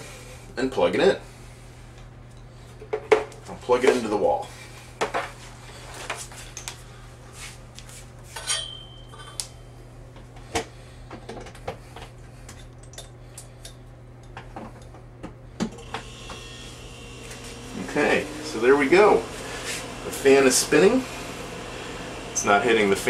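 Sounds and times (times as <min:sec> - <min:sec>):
low hum: 0:16.0 - 0:23.0.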